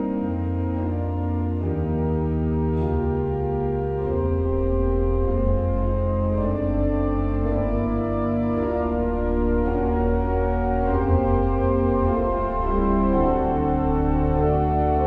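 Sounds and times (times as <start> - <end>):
organ playing slow chords: 0.0 - 15.0.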